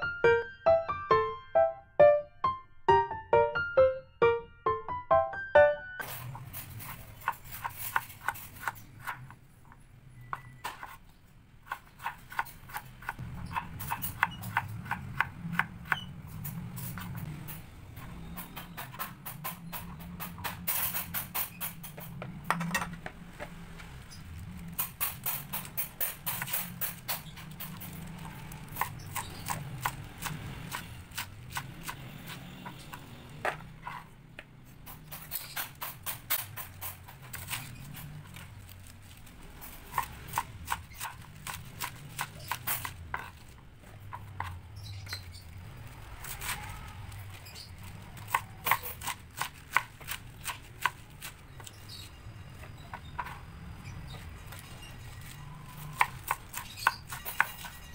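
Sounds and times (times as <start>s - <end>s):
knife chopping on plastic board: 11.6s - 16.1s, 39.9s - 43.5s, 48.2s - 51.7s, 55.9s - 57.8s.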